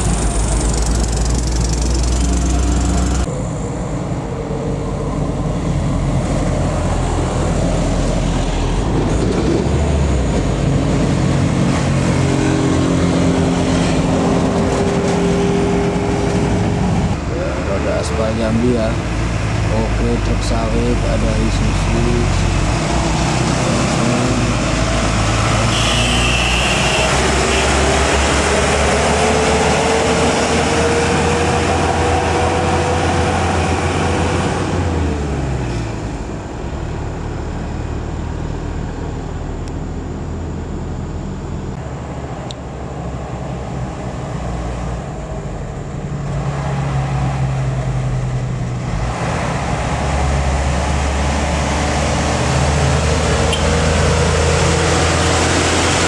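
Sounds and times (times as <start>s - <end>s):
whine: 0.0s - 17.8s, 36.2s - 43.6s
diesel truck engine passing: 0.0s - 56.0s
second diesel truck approaching: 0.0s - 56.0s.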